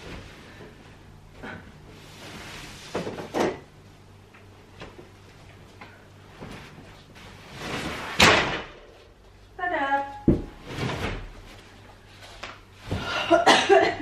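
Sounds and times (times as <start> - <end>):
mattress thumps: 10.3 - 11.4.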